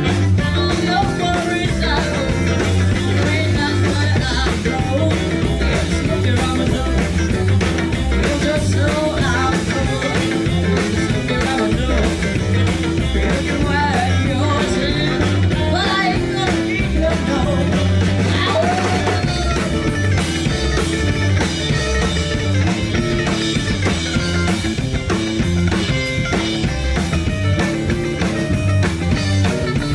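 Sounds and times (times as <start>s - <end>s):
drum kit: 0.0s - 29.9s
electric guitars: 0.0s - 29.9s
saxophone: 17.6s - 25.1s.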